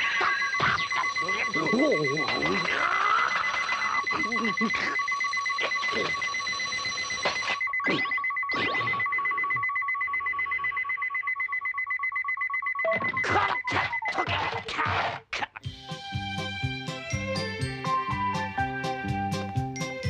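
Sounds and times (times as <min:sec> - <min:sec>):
alarm clock bell ringing: 0:00.0 - 0:07.5, 0:15.7 - 0:19.0.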